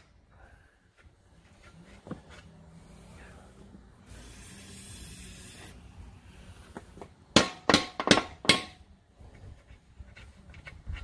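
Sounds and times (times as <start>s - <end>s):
faint hiss: 2.6s - 6.8s
hammer striking metal: 7.4s - 8.9s.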